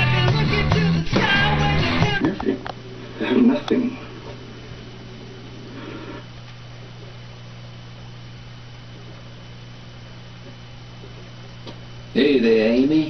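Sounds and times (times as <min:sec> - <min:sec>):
low electrical hum: 0:00.0 - 0:13.0
even hiss: 0:05.6 - 0:06.3.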